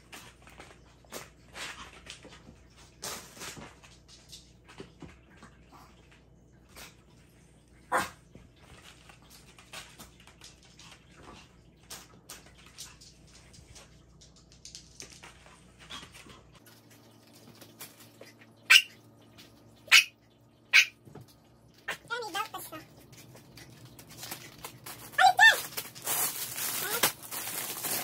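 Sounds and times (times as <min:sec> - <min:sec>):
dog barking: 0:07.9 - 0:08.2, 0:18.7 - 0:19.0, 0:19.9 - 0:20.1, 0:20.7 - 0:21.0
fleece and plastic wrap rustling: 0:23.5 - 0:28.0.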